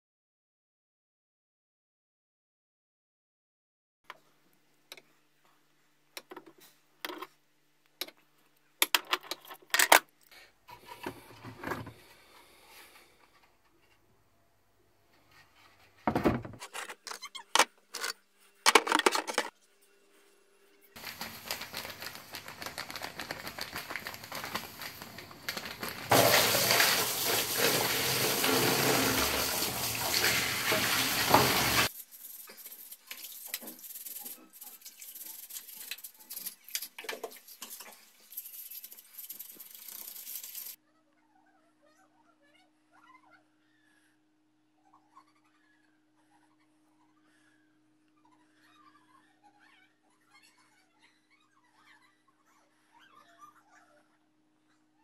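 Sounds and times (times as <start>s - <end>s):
plastic knocks and clatters: 16.0s - 16.9s
water pouring into plastic basin: 21.0s - 31.9s.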